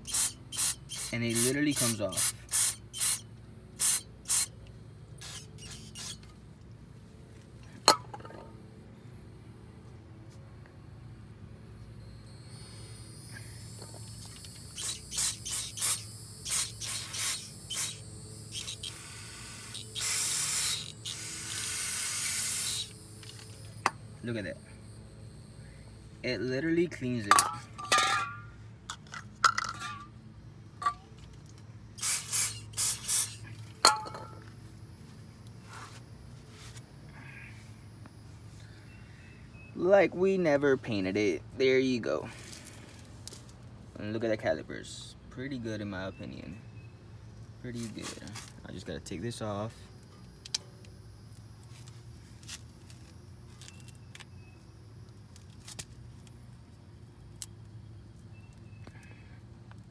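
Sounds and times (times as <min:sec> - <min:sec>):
aerosol spray hissing: 0:00.0 - 0:03.2, 0:03.8 - 0:04.5, 0:05.2 - 0:06.2, 0:14.4 - 0:23.0, 0:32.0 - 0:33.5
low background hum: 0:00.0 - 0:59.9.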